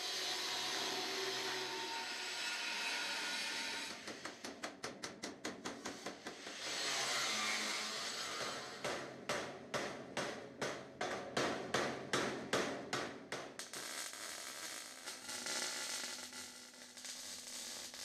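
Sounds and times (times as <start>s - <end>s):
hammer striking metal: 8.4s - 13.5s
welding arc crackling hiss: 13.6s - 18.0s.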